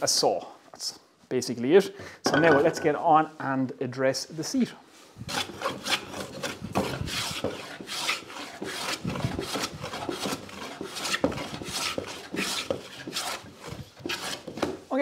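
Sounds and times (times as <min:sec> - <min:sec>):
hand plane scraping wood: 0:05.3 - 0:14.8.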